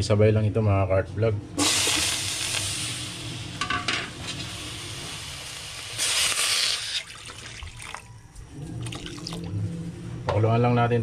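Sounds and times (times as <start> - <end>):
vegetables sizzling in hot oil: 1.6 - 7.1.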